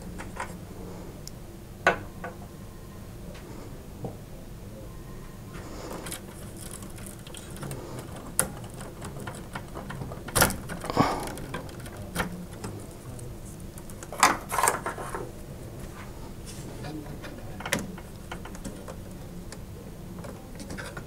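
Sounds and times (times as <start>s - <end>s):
small clicks and rattles of pc parts: 5.9s - 15.2s, 17.5s - 21.0s.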